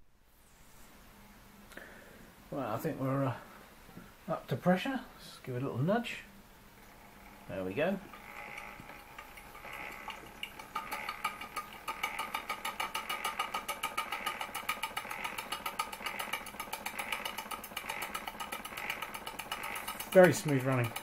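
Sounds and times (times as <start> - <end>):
steam engine chuffing: 8.1 - 21.0
light clicks of engine: 9.7 - 21.0.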